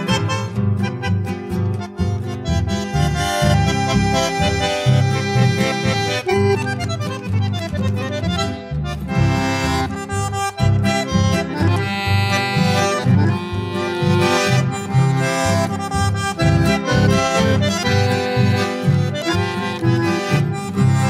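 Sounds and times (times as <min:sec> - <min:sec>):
music with bass beat: 0:00.1 - 0:21.0.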